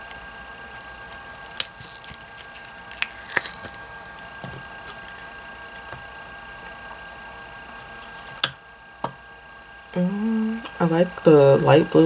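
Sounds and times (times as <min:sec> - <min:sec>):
silicone mold peeling off resin: 0:00.0 - 0:05.9.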